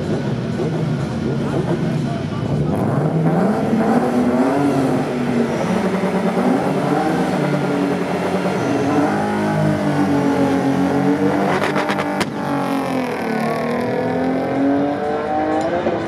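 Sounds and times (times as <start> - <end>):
car engines revving hard: 0.0 - 16.0.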